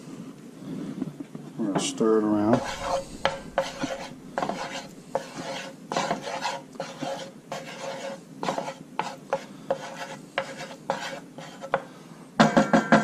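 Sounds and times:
wooden spoon scraping a pan: 0:02.5 - 0:11.8.

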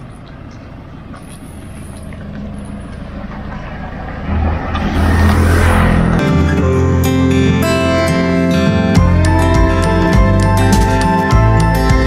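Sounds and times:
vehicle engine humming: 0:00.0 - 0:12.0
music: 0:06.2 - 0:12.0.

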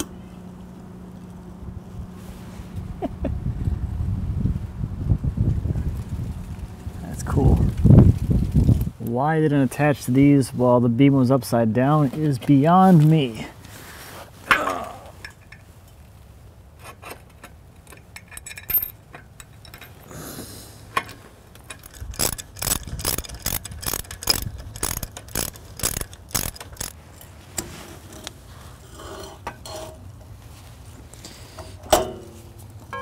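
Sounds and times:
steel parts clinking: 0:16.8 - 0:20.1, 0:20.9 - 0:28.3.

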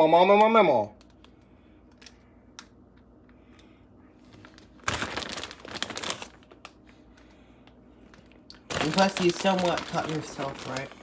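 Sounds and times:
plastic bag rustling and crinkling: 0:04.2 - 0:07.1, 0:08.0 - 0:11.0.

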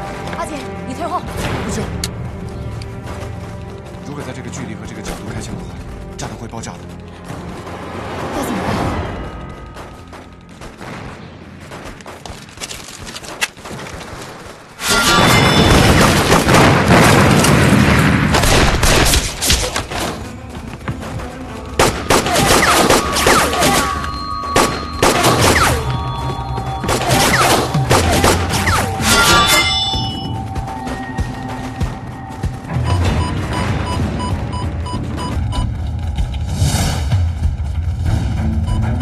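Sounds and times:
dramatic music score: 0:00.0 - 0:39.0
gunfire and blasts: 0:10.6 - 0:12.3, 0:13.6 - 0:20.2, 0:21.7 - 0:25.8, 0:26.8 - 0:29.4.

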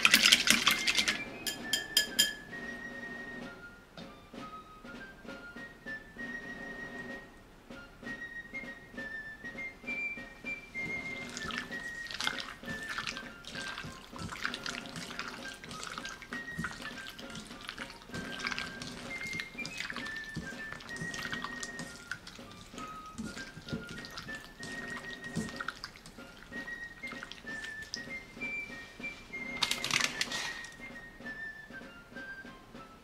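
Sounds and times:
hand squelching meat in marinade: 0:00.0 - 0:01.2, 0:10.8 - 0:30.9
background music: 0:00.0 - 0:33.0.

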